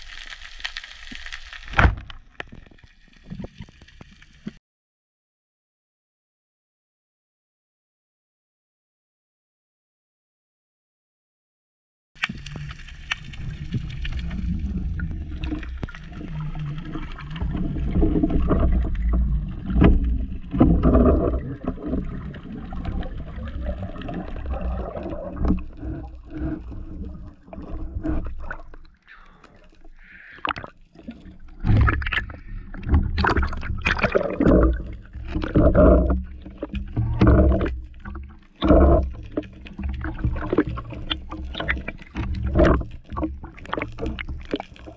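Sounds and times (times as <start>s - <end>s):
muffled underwater rush: 12.2s - 44.9s.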